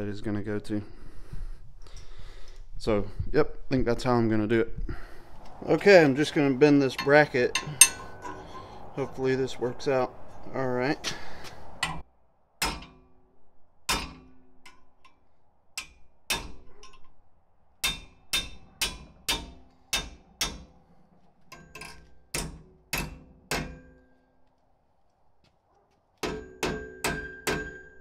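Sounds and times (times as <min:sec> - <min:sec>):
hammer striking steel bracket: 0:06.6 - 0:09.3, 0:11.8 - 0:12.0, 0:12.6 - 0:13.1, 0:13.9 - 0:14.8, 0:15.8 - 0:16.7, 0:17.8 - 0:20.7, 0:21.5 - 0:23.9, 0:26.2 - 0:28.0.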